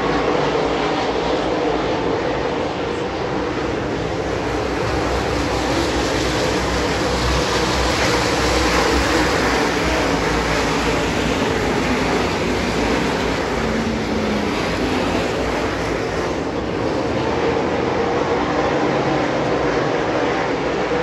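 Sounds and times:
race car engines droning: 0.0 - 21.0.

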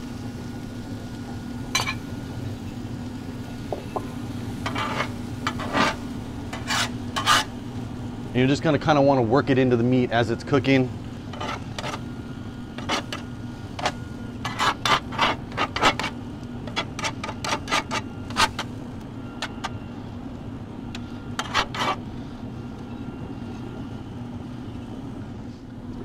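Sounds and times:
metal spatula scraping griddle: 4.6 - 7.6, 11.3 - 12.1, 12.8 - 13.2, 13.8 - 18.7, 21.0 - 22.0.

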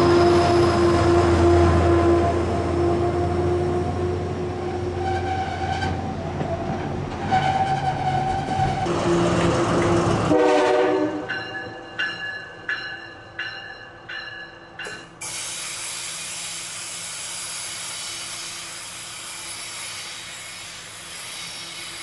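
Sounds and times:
locomotive bell ringing: 10.8 - 15.2
locomotive hissing noise: 15.2 - 22.0.

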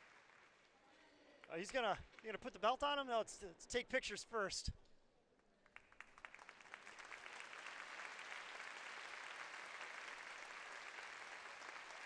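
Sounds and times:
crowd applauding: 0.0 - 0.7, 5.7 - 12.0.

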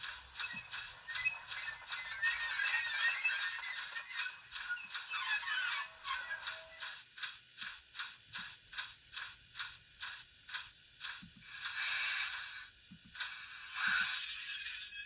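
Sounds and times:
steam locomotive exhaust chuffs: 0.0 - 15.0
steam hiss: 6.8 - 14.8
high steady tone: 11.4 - 15.0.

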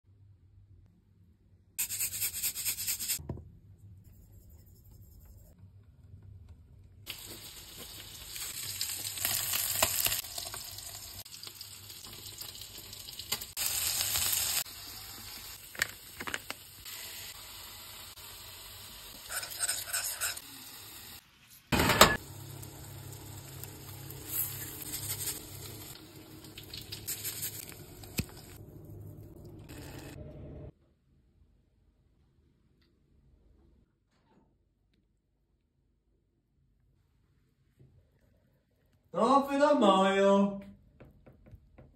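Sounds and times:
food sizzling in pan: 7.1 - 21.4, 22.1 - 28.6
stirring and handling noises: 26.5 - 29.6.

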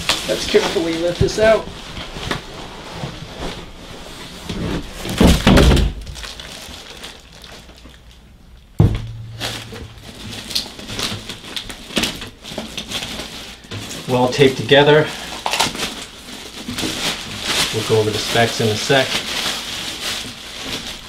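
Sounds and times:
plastic wrap rustling: 0.0 - 21.0
heavy thunk on desk: 8.8 - 9.9.

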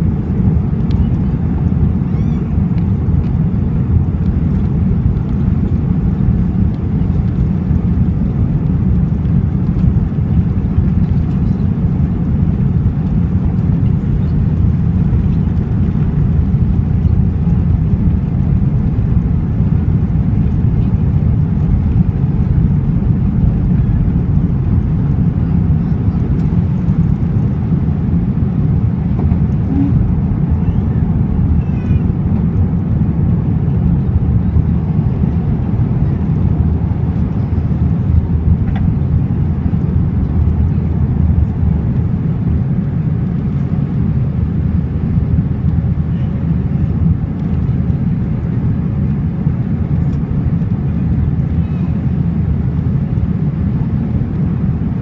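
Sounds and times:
jet engines at takeoff thrust: 0.0 - 55.0.

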